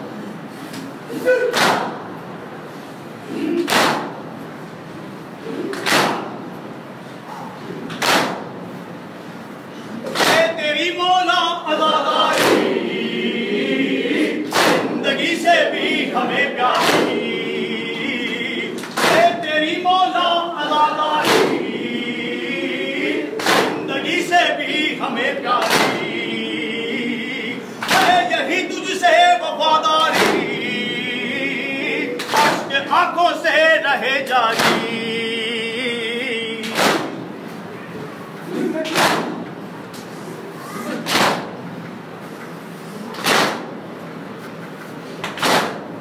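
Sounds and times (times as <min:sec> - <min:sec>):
crowd beating chests: 0:01.3 - 0:02.3, 0:03.5 - 0:04.5, 0:05.7 - 0:06.6, 0:10.0 - 0:11.2, 0:12.1 - 0:26.5, 0:27.7 - 0:31.0, 0:32.0 - 0:33.0, 0:34.3 - 0:35.2, 0:36.6 - 0:37.5, 0:38.8 - 0:39.7, 0:43.2 - 0:44.0, 0:45.3 - 0:46.0
men chanting in unison: 0:10.1 - 0:37.0.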